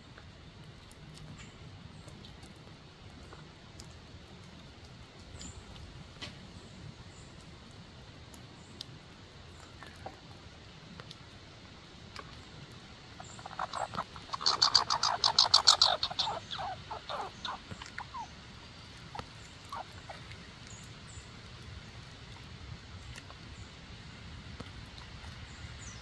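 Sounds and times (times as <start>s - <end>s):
squirrel chattering: 13.2s - 18.3s, 19.1s - 20.2s.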